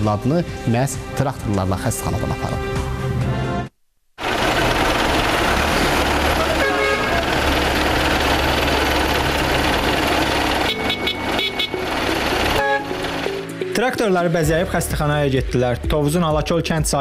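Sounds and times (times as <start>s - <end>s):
tractor diesel engines running: 4.2s - 13.7s
horns tooting: 6.2s - 7.8s, 9.8s - 13.5s.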